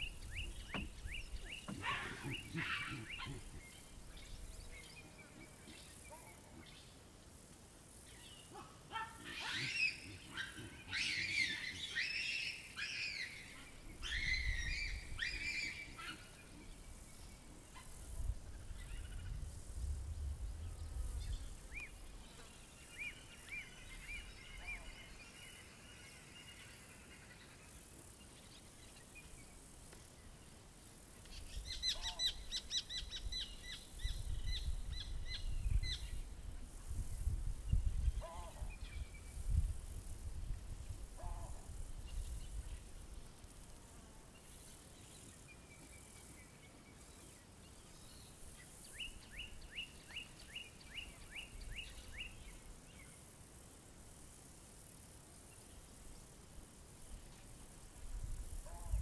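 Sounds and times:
birds whistling and chattering: 0:00.0 - 0:06.8, 0:08.2 - 0:18.0.

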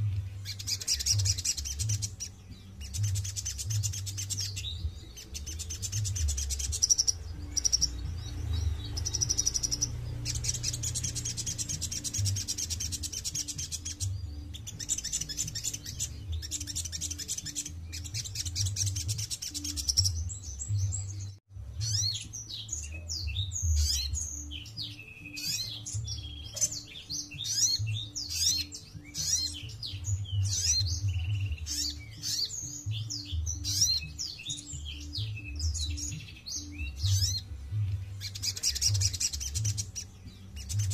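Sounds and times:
bird trilling and chirping: 0:00.0 - 0:40.9.

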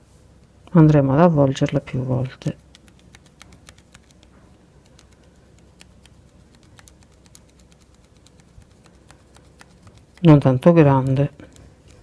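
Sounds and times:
thread being wound by hand: 0:02.4 - 0:12.0.

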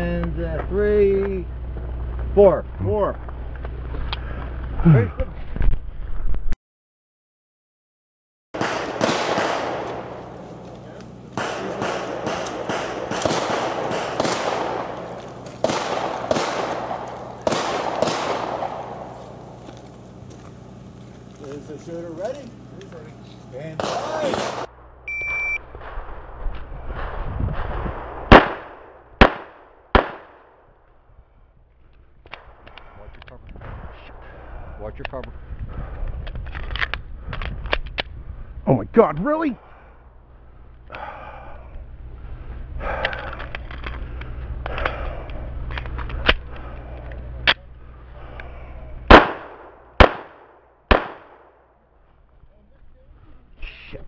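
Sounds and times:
low rumble: 0:00.0 - 0:06.6, 0:08.6 - 0:53.7
pistol shots: 0:08.6 - 0:10.6, 0:11.3 - 0:19.6, 0:23.8 - 0:24.7, 0:28.2 - 0:30.6, 0:49.1 - 0:51.7
electronic start beep: 0:25.1 - 0:25.6.

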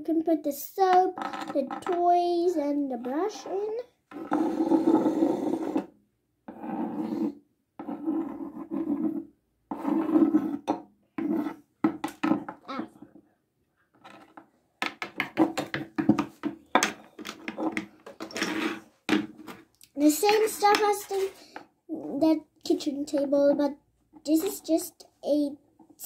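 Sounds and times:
plastic toys scraping on wood: 0:01.0 - 0:02.0, 0:03.3 - 0:05.9, 0:06.5 - 0:12.5, 0:15.0 - 0:21.6.

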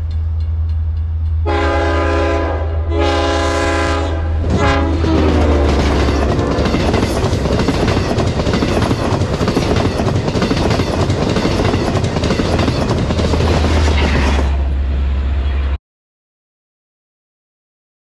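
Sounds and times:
train coaches rushing past: 0:00.0 - 0:15.8
wheel clatter on rails: 0:05.0 - 0:14.7.

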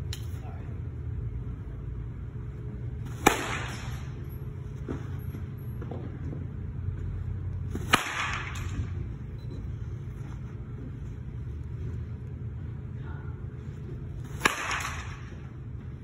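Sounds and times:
steady low hum: 0:00.0 - 0:16.0
baseball bat hitting ball: 0:03.1 - 0:04.2, 0:07.7 - 0:09.0, 0:14.2 - 0:15.4.

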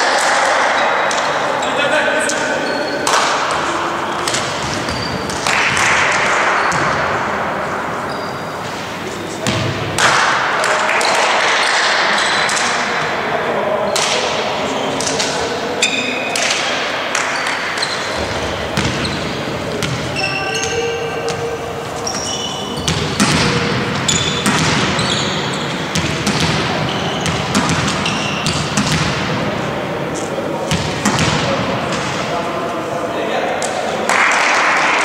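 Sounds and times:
sneakers squeaking on court: 0:02.3 - 0:07.2, 0:08.0 - 0:09.8, 0:17.3 - 0:29.3
players calling out: 0:10.4 - 0:34.9.

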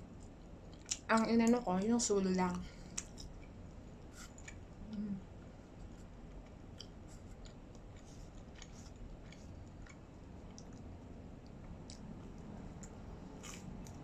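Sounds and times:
person humming: 0:04.8 - 0:05.2.

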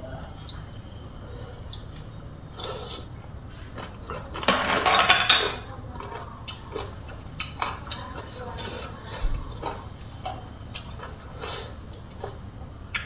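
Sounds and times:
close-up chewing: 0:05.9 - 0:13.0.

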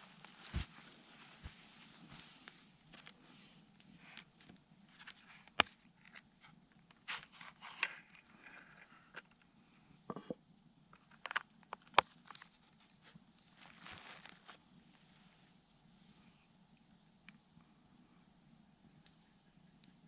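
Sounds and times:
leather rubbing and rustling: 0:00.0 - 0:03.1, 0:13.5 - 0:14.6.

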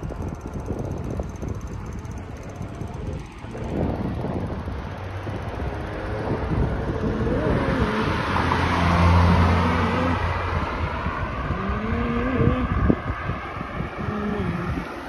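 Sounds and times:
wind rushing over microphone: 0:00.0 - 0:15.0
car driving past: 0:05.0 - 0:13.8.

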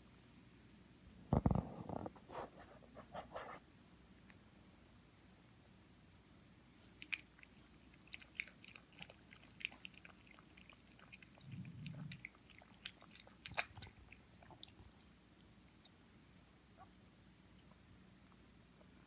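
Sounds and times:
dogs chewing and gnawing: 0:07.0 - 0:15.1.

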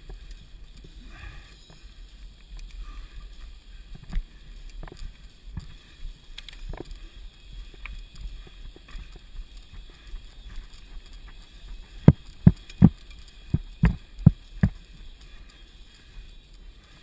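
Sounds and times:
bike rattling over bumps: 0:00.0 - 0:17.0.

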